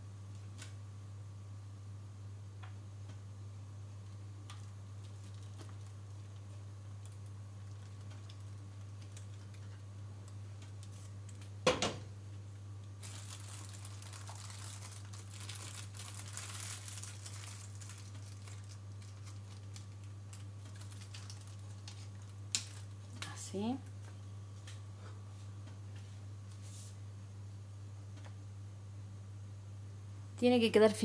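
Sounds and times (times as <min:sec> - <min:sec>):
steady low hum: 0:00.0 - 0:31.0
plastic sheeting crinkling: 0:04.5 - 0:09.8, 0:13.0 - 0:23.1.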